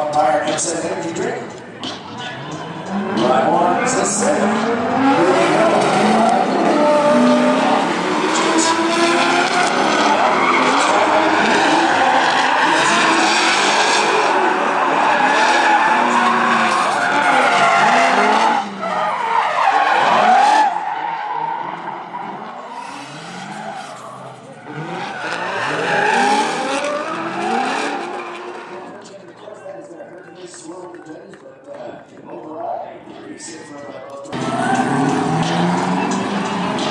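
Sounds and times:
car engines revving: 0.0 - 31.6, 34.3 - 36.9
tyres squealing: 1.8 - 28.8.

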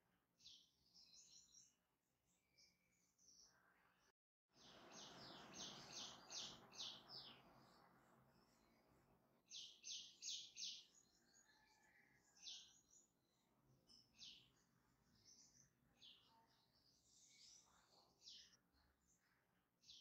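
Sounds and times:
bird chirping: 4.6 - 20.0.

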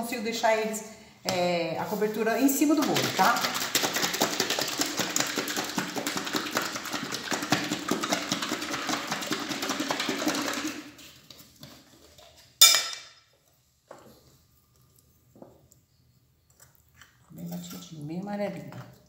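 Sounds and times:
milk sloshing in shaken bottle: 2.4 - 12.6.

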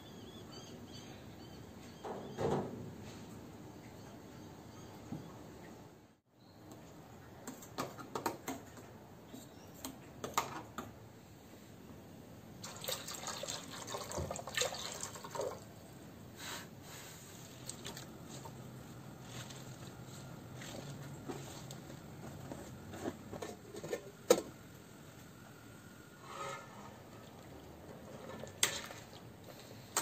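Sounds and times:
liquid pouring into metal pot: 12.6 - 15.6.

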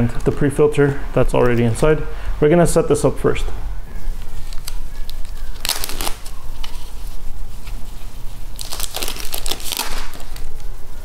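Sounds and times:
steady low hum: 0.0 - 11.0
plastic wrapping crinkling: 3.9 - 11.0.

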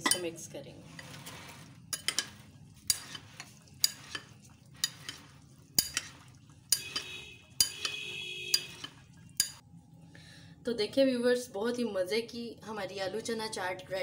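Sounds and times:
spoon clinking against glass bowl: 3.8 - 9.6.

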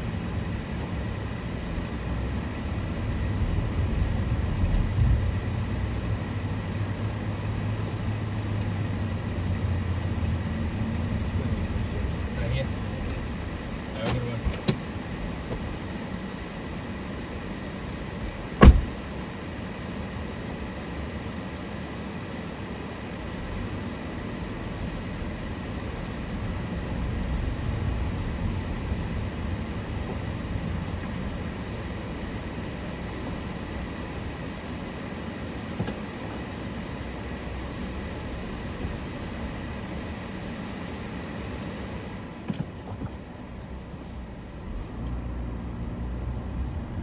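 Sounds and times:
car cabin road rumble: 0.0 - 47.0
sharp thump: 18.6 - 18.9.

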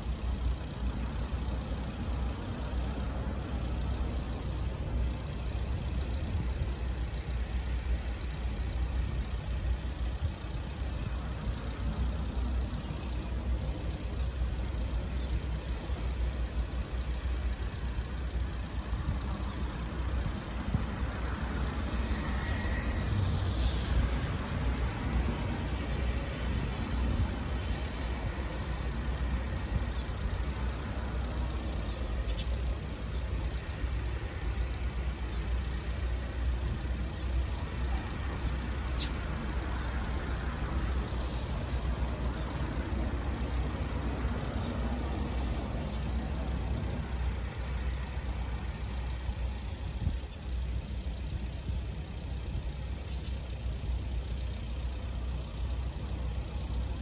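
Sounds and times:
road traffic hum: 0.0 - 57.0
cars passing: 19.0 - 32.3, 33.1 - 49.8.

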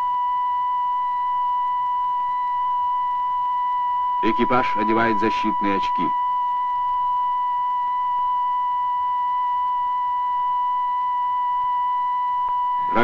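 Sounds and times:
high-pitched electronic tone: 12.7 - 13.0.

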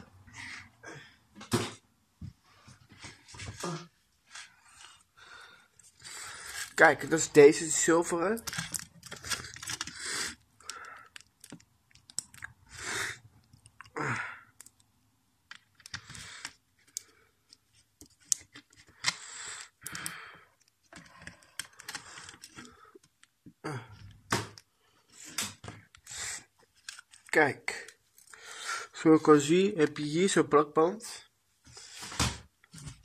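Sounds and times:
plastic parts handled clicking: 8.4 - 10.0, 10.6 - 12.5, 15.5 - 19.2, 19.8 - 23.4.

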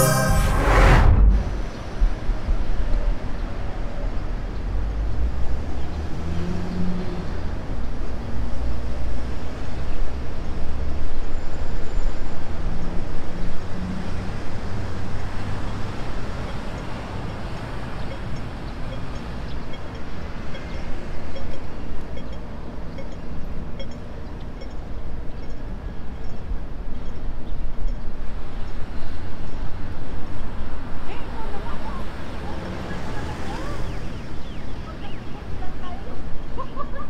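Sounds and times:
vehicles passing: 0.0 - 2.4, 13.1 - 26.0, 28.2 - 37.0
road traffic: 3.2 - 37.0.

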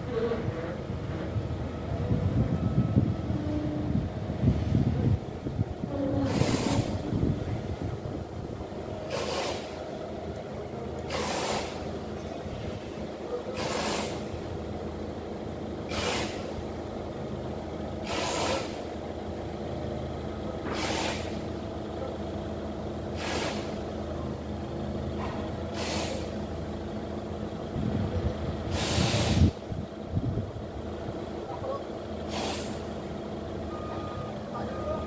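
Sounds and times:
forklift engine running: 0.0 - 35.0
air hiss: 9.1 - 9.8, 11.1 - 11.9, 13.6 - 14.3, 15.9 - 16.5, 18.0 - 18.8, 20.7 - 21.4, 23.2 - 23.8, 25.7 - 26.4, 28.7 - 29.6, 32.3 - 32.9.

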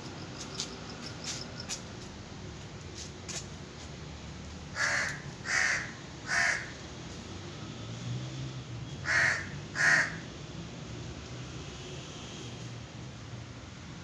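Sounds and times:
crow cawing: 4.8 - 6.8, 9.0 - 10.2.

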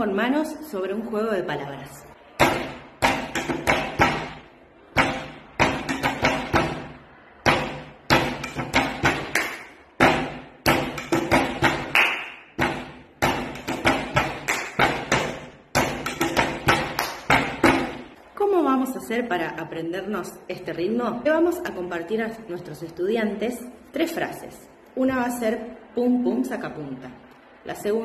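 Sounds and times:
hand slapping a table: 2.4 - 18.1
fist thumping a table: 5.0 - 9.4, 10.0 - 11.9
hands clapping: 9.2 - 9.8, 11.0 - 12.5, 13.6 - 15.3, 16.0 - 17.5.

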